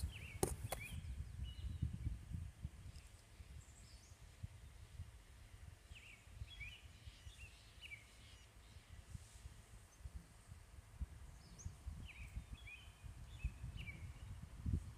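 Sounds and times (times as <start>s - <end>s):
faint bird chirps: 5.8s - 9.2s.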